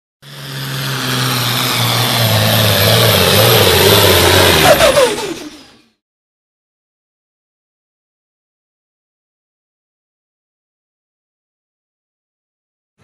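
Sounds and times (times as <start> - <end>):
diesel tractor engine revving: 0.2 - 6.0.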